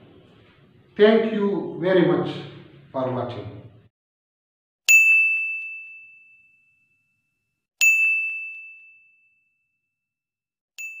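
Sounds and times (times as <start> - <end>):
high ding: 4.9 - 9.8, 10.8 - 11.0.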